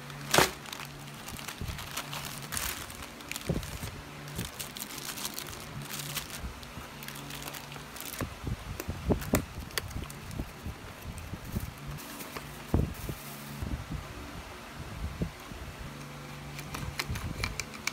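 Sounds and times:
plastic packaging crinkling: 0.0s - 8.3s, 9.1s - 12.2s.

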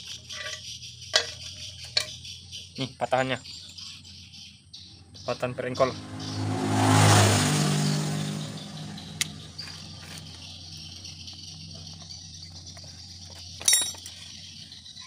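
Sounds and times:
small metal parts jangling: 0.0s - 2.4s, 10.0s - 15.0s
vehicle engine: 0.0s - 15.0s.

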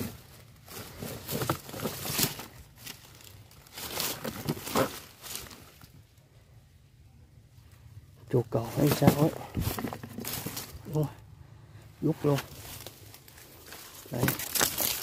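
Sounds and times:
dry leaves crackling and rustling: 0.0s - 6.0s, 8.6s - 11.2s, 12.0s - 15.0s.

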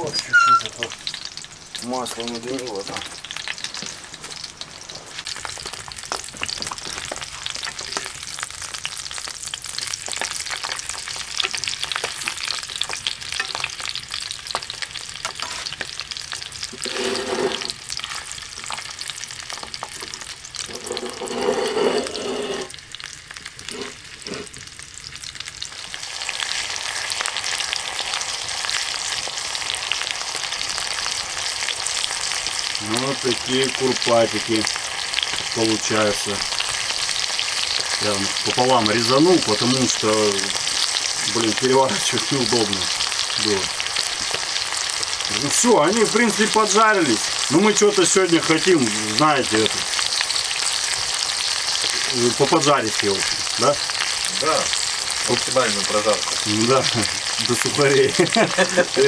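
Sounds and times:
sausages sizzling in oil: 0.0s - 59.0s.

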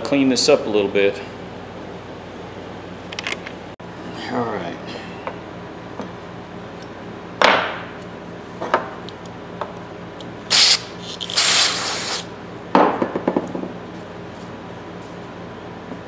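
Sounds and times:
aerosol spray hisses: 10.5s - 12.3s.

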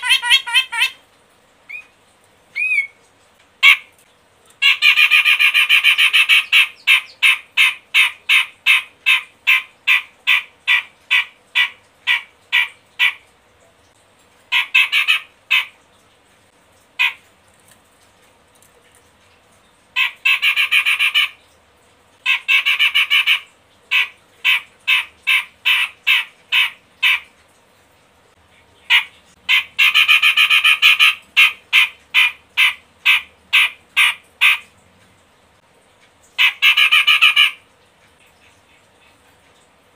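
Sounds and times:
bird harsh chattering calls: 0.0s - 1.0s, 4.6s - 13.2s.

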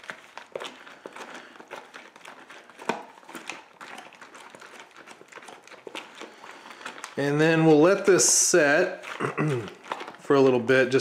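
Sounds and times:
foil pouch crinkling: 0.0s - 11.0s.

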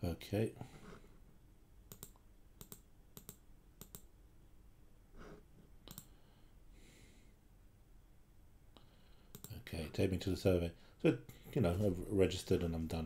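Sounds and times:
faint computer mouse clicks: 1.9s - 4.1s, 5.8s - 6.1s, 8.8s - 9.6s.

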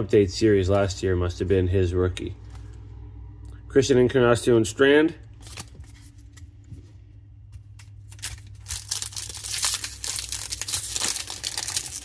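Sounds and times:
foil wrapper crinkling and tearing: 7.8s - 12.0s.

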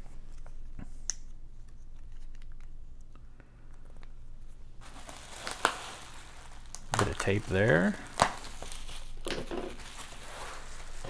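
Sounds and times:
bubble wrap rustling: 4.8s - 11.0s.

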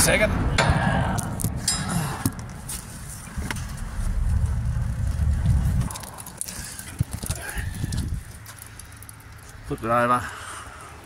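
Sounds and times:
microphone handling rumble: 0.0s - 8.4s.

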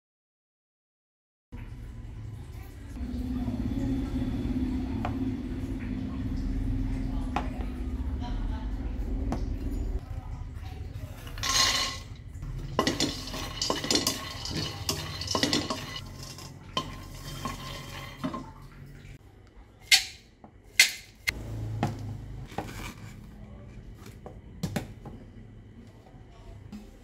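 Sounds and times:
peanuts rattling in a wok: 11.4s - 18.2s.

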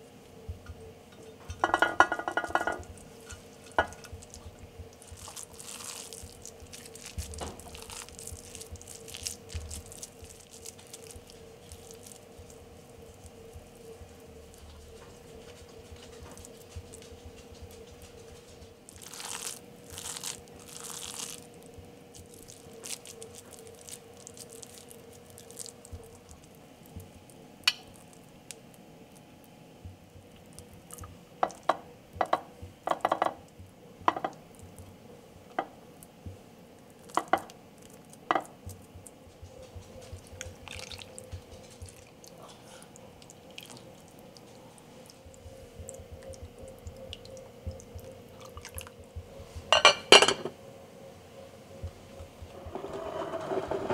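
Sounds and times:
faint steady hum: 0.0s - 53.9s
squishing minced meat: 2.9s - 31.2s, 35.8s - 49.7s.

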